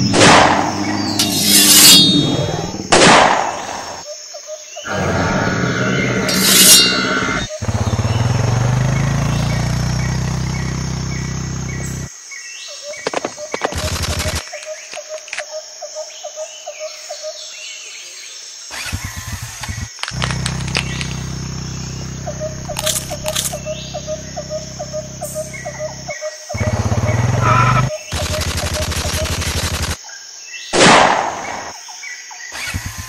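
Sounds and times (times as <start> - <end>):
low engine drone: 4.9 - 12.1, 19.6 - 29.9
quick clicks: 13.2 - 15.5, 22.6 - 23.6, 28.1 - 30.0
machine-gun fire: 13.7 - 14.5, 28.1 - 30.0.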